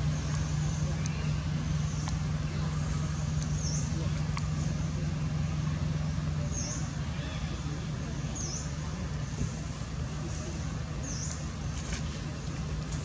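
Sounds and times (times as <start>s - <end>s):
low motor hum: 0.0s - 13.0s.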